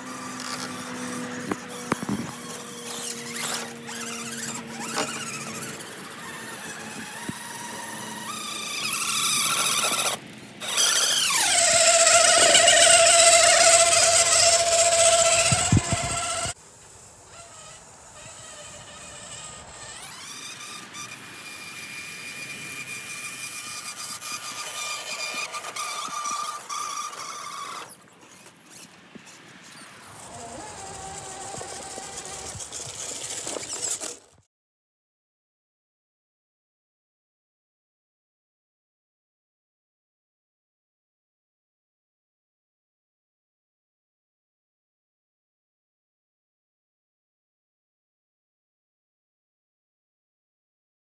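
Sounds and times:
electric motor whine: 0.0 - 34.4.

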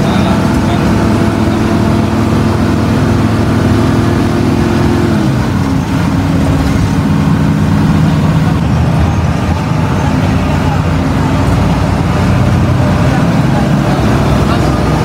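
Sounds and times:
bus diesel engine: 0.0 - 15.0
road noise: 0.0 - 15.0.

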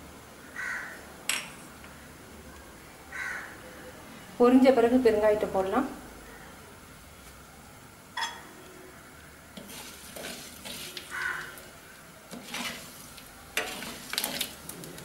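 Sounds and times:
seeds sizzling in oil: 9.5 - 15.0
metal ladle scraping clay pot: 9.6 - 11.5, 12.3 - 14.7.

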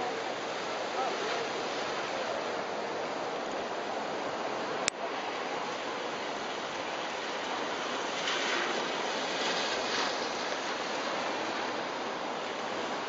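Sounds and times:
car tyres hissing on wet road: 7.3 - 13.0.

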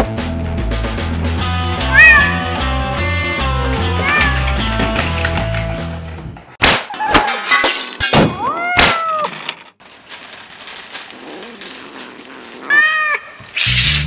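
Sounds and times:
cat meowing and yowling: 1.9 - 2.7, 8.4 - 9.3, 12.6 - 13.5.

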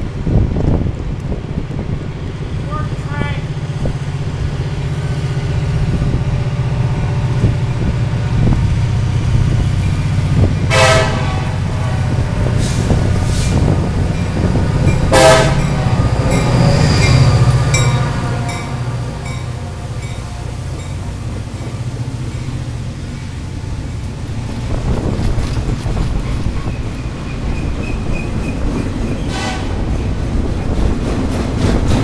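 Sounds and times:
diesel locomotive rumbling: 0.0 - 32.0
train horn blasts: 10.6 - 13.4, 15.1 - 20.8, 29.3 - 29.9
wheels clicking over rail joints: 20.7 - 32.0.

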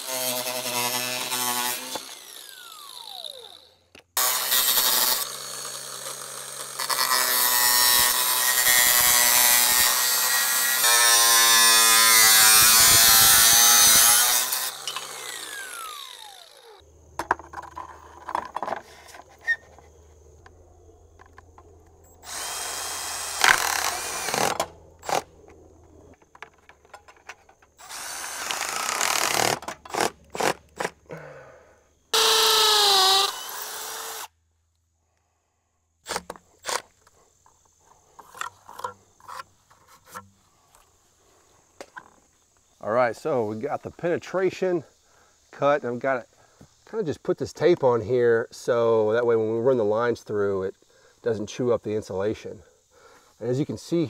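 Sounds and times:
angle grinder cutting metal: 0.0 - 16.8, 22.1 - 25.3, 27.8 - 30.9, 32.1 - 34.3
cordless drill driving screws: 0.0 - 16.8, 22.1 - 25.3, 27.8 - 30.9, 32.2 - 34.3.

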